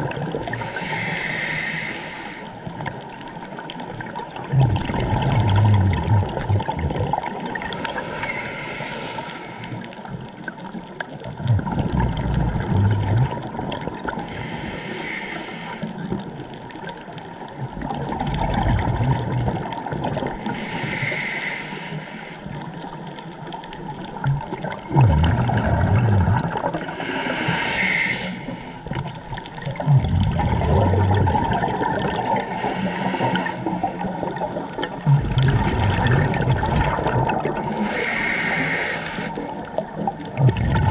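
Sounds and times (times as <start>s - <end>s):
regulator hissing inhale: 0.4s - 2.7s, 7.8s - 10.2s, 14.1s - 16.2s, 20.4s - 22.7s, 26.8s - 28.9s, 32.4s - 34.4s, 37.6s - 39.7s
exhaled bubbles rushing: 2.8s - 8.6s, 11.2s - 14.3s, 17.6s - 20.5s, 23.9s - 26.9s, 28.8s - 37.8s, 39.5s - 40.9s.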